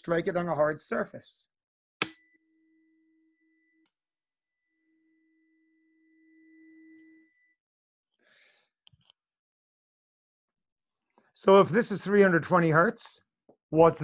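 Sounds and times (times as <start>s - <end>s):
tuning fork ringing: 2.0s - 7.7s.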